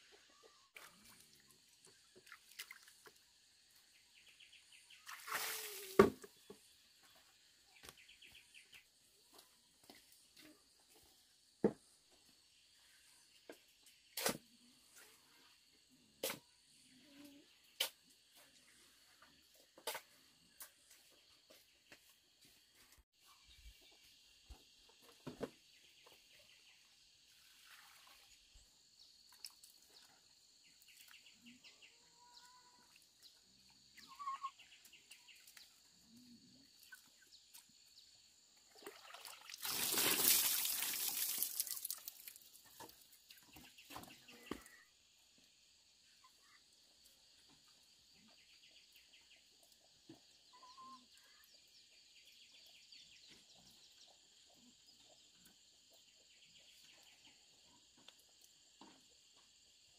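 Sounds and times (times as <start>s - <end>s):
bird or chicken calls: 34.0s - 34.7s.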